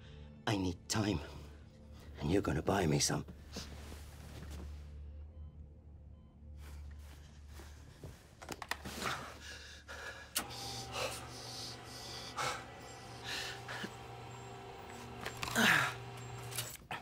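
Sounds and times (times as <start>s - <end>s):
man panting and gasping: 9.0s - 14.0s.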